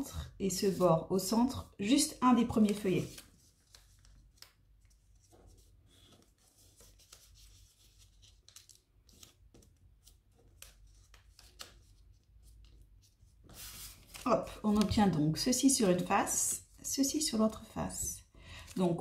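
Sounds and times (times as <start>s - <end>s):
paper rustling and crinkling: 2.5s - 16.1s.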